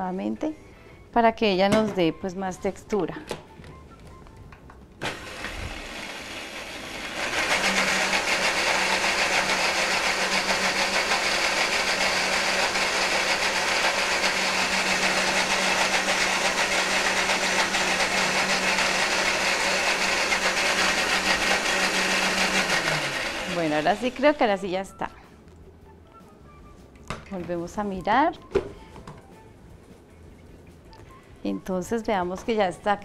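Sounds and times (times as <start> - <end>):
blender motor running: 5.0 - 24.4.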